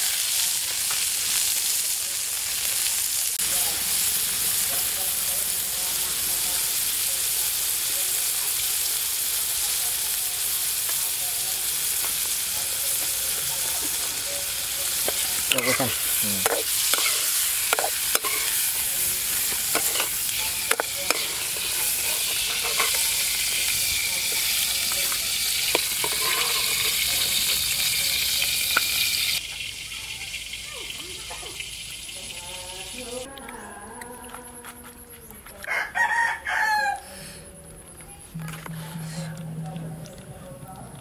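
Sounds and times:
hot oil sizzling: 0.0s - 33.3s
metal spatula scraping pan: 13.6s - 29.4s.

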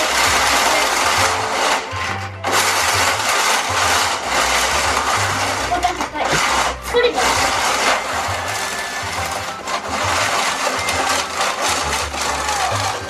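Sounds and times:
toy cars clattering on track: 0.0s - 13.0s
toy gear mechanism whirring: 0.0s - 13.0s.

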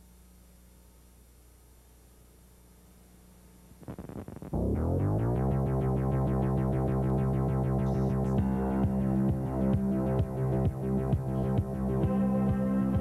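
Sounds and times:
synthesizer music: 4.6s - 13.0s.

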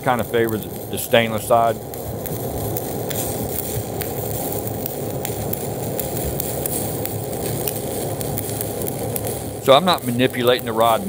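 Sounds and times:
welding arc crackling sizzle: 0.0s - 11.0s.

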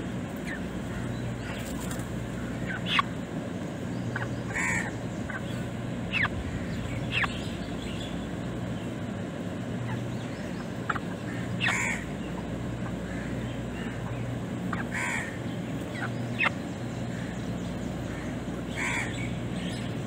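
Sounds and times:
low hum: 0.0s - 20.0s
short bird calls: 0.4s - 3.1s, 9.8s - 20.0s.

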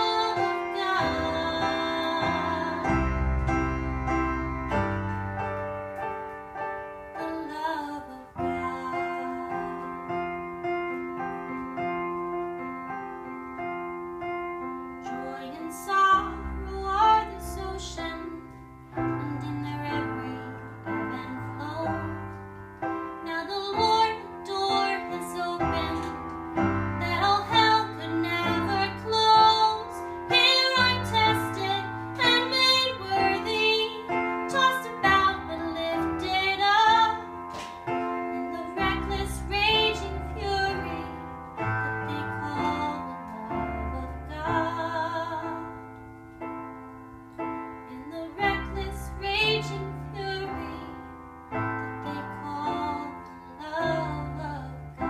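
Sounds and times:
woman singing slow song: 0.0s - 3.5s, 7.1s - 10.4s, 15.0s - 46.0s, 47.8s - 55.0s
digital piano: 0.0s - 55.0s
deep bass notes: 1.3s - 5.8s.

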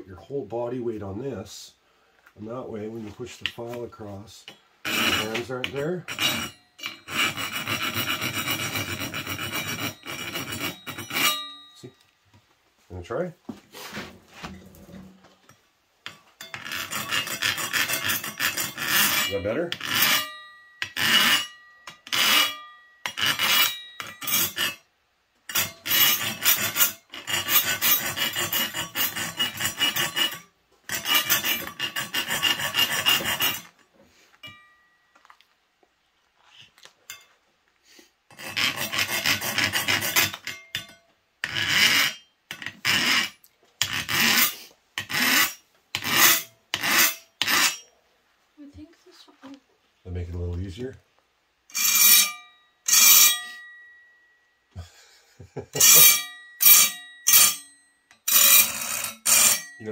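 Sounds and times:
hand file rasping on metal: 4.5s - 11.8s, 16.1s - 24.9s, 25.5s - 33.8s, 38.3s - 47.9s, 51.7s - 53.7s, 55.8s - 59.9s.

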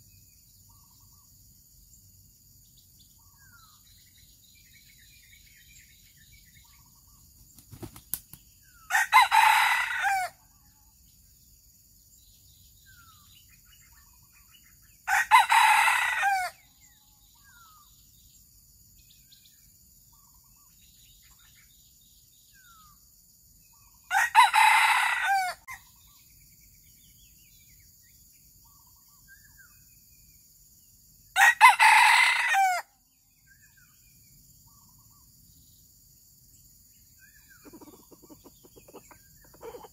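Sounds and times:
rooster crowing: 8.9s - 10.4s, 15.1s - 16.6s, 24.1s - 25.8s, 31.4s - 32.9s.

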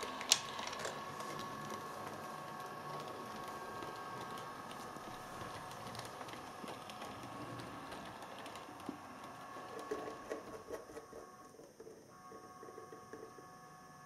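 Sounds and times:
small electric motor whine: 0.0s - 14.0s.

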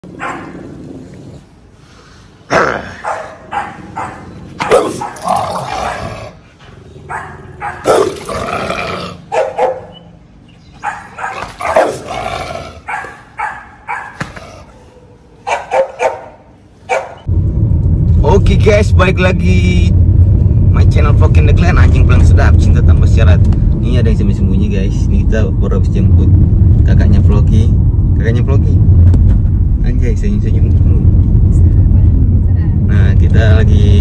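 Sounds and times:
dog barking and growling: 0.0s - 1.0s, 2.5s - 10.0s, 10.8s - 17.3s.

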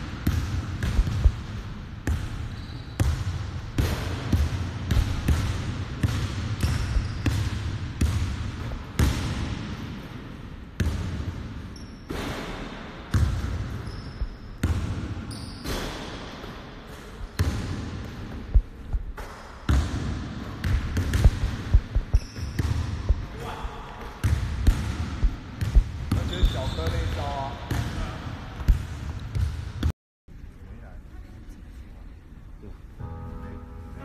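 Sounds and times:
basketballs bouncing on wooden floor: 0.0s - 9.8s, 10.8s - 12.4s, 13.1s - 16.6s, 17.2s - 29.9s
shoe squeaks: 2.4s - 3.0s, 6.6s - 7.3s, 11.8s - 12.1s, 13.8s - 14.6s, 15.3s - 15.8s, 22.1s - 22.6s, 26.2s - 27.3s.

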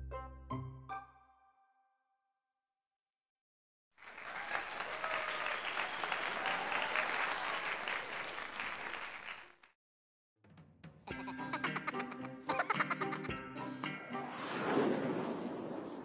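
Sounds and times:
applause: 4.0s - 9.8s.

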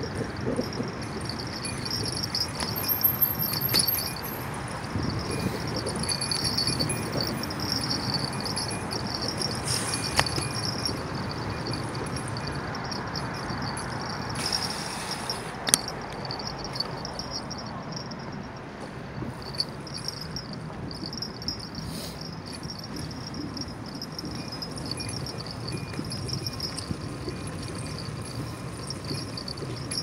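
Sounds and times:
bicycle tyre noise: 0.0s - 17.5s
rushing wind: 0.0s - 30.0s.

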